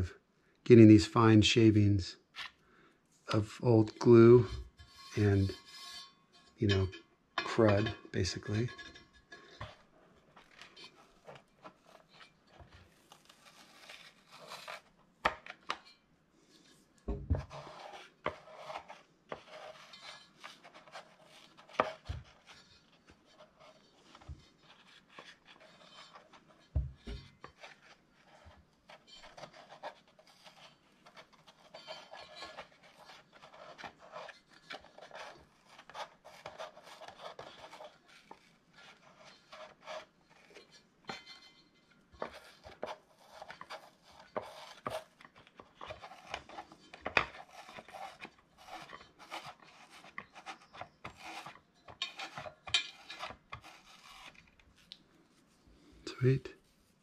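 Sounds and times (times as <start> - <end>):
scraping foam off speaker cone: 9.6 - 15.9, 16.7 - 40.8, 42.1 - 55.5.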